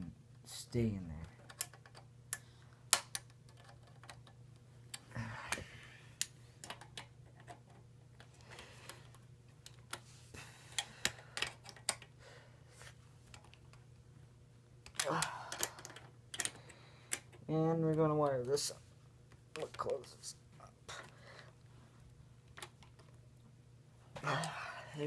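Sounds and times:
wiring being handled: 20.9s - 23.5s.

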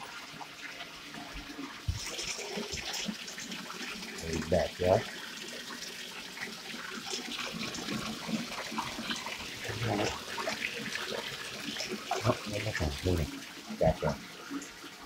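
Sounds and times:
steady watery hiss: 0.0s - 15.0s
water splashing in bathtub: 0.0s - 15.0s.

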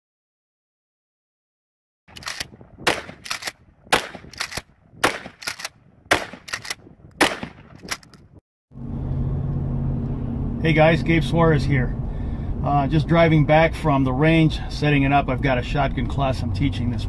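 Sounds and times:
shotgun pump clacks: 2.1s - 8.2s
shotgun shots: 2.1s - 8.2s.

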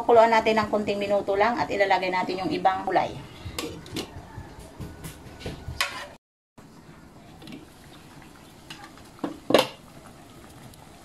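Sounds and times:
soup boiling: 6.6s - 11.0s.

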